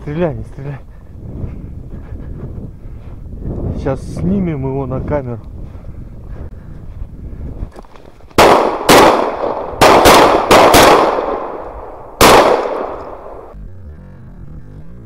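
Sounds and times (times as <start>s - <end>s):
shotgun shots echoing: 8.4s - 13.6s.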